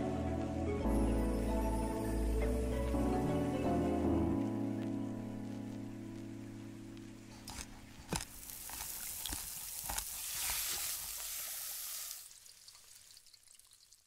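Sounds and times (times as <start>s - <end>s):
crackling hiss with clicks: 3.6s - 14.0s.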